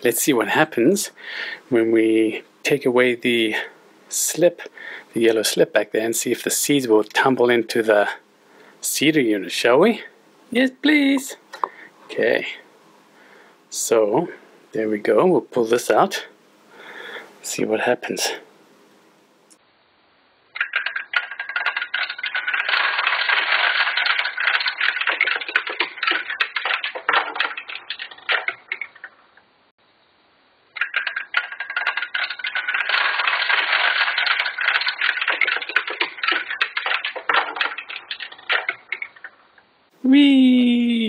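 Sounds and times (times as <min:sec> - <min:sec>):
plastic seeds clattering down chute: 0:20.6 - 0:28.9, 0:30.8 - 0:39.1.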